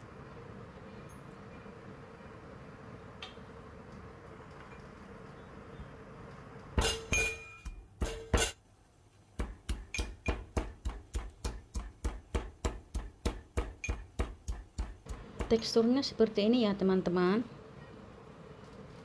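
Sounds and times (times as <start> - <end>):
metal pestle pounding in mortar: 6.8 - 8.6, 9.4 - 15.7.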